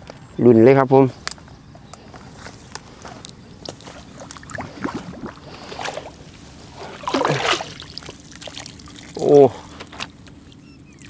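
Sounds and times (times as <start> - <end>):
water sloshing and splashing: 3.6 - 10.1.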